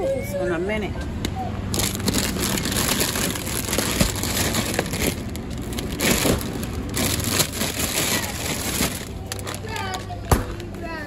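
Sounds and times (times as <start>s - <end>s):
plastic bags crinkling: 1.7s - 10.2s.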